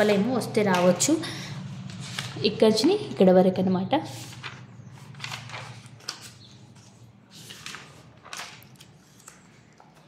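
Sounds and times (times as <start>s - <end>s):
paper pages turning: 1.7s - 2.6s, 4.1s - 10.0s.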